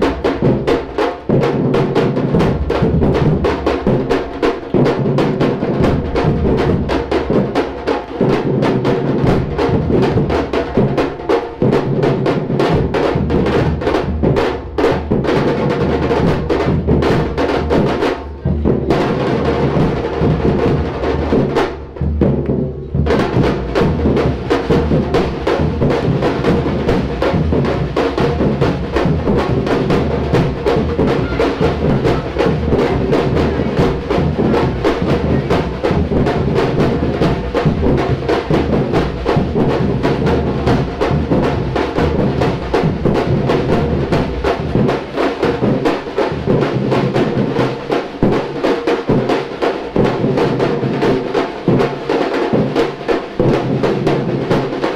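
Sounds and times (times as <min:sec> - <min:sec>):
snare and high drums: 0:00.0 - 0:54.9
deep bass drums: 0:02.2 - 0:04.1, 0:12.7 - 0:44.9.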